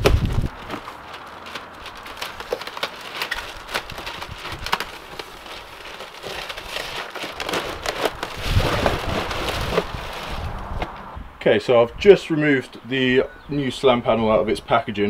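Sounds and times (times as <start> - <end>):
packaging crackling and rustling: 0.0 - 11.0.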